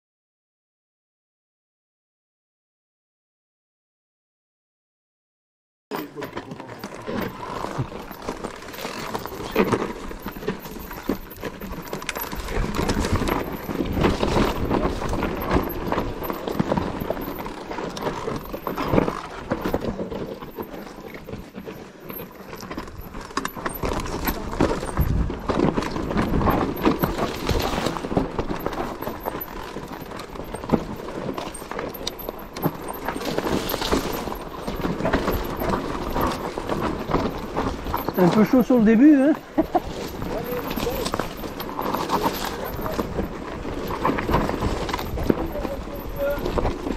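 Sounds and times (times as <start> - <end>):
mountain bike clattering: 5.9 - 46.9.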